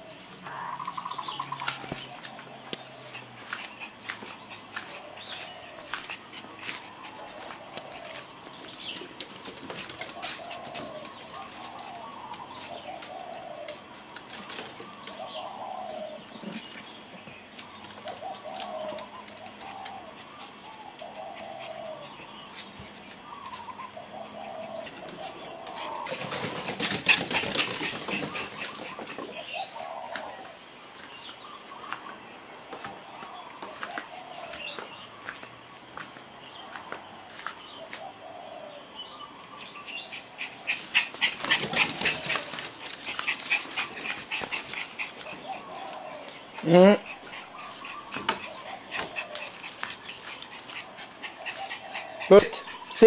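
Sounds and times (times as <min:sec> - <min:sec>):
pigeon cooing: 0:00.0 - 0:16.8, 0:17.8 - 0:22.4, 0:23.2 - 0:30.6, 0:37.3 - 0:53.0
wings flapping: 0:25.1 - 0:29.4, 0:40.5 - 0:45.4.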